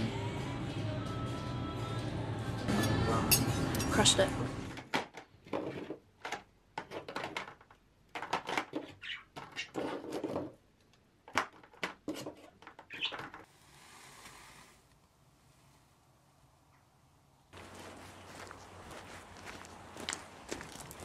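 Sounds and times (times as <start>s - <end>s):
objects knocking and clattering: 4.7s - 10.6s.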